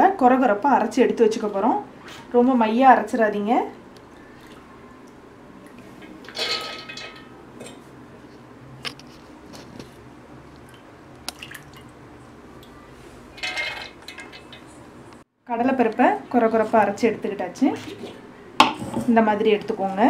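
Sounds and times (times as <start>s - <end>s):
steel jar clattering: 6.3s - 7.3s, 13.4s - 14.8s.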